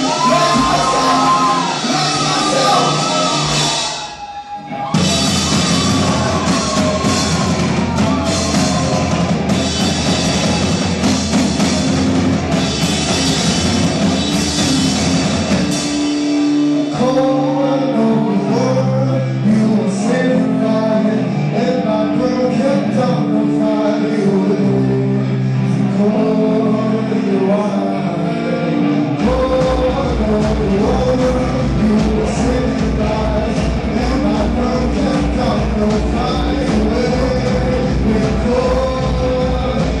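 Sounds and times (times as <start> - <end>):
person singing: 0.0 - 4.2, 16.4 - 40.0
drum kit: 0.0 - 17.5, 29.2 - 40.0
bass notes: 0.0 - 40.0
live rock band playing: 0.0 - 40.0.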